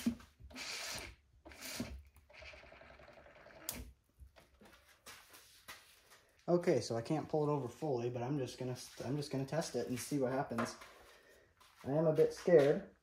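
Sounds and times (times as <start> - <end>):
faint scuffing and rubbing: 4.5 - 7.2, 7.8 - 13.0.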